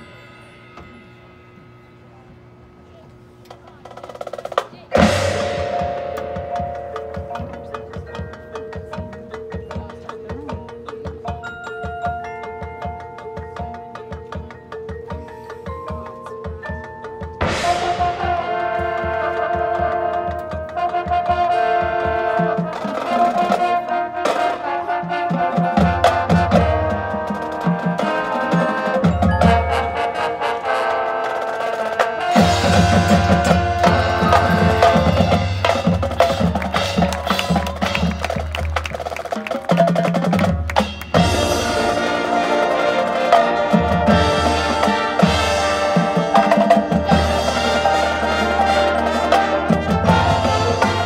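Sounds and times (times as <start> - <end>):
drumline and percussion: 3.4 - 51.0
marching band playing: 3.4 - 51.0
brass sustained chords: 17.4 - 35.7, 41.2 - 51.0.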